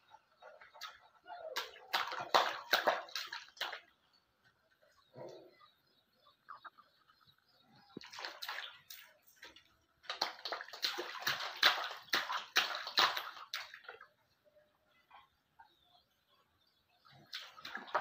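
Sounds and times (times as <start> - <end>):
water splashing in a plastic tub: 0.0 - 4.0, 8.0 - 14.2, 17.2 - 18.0.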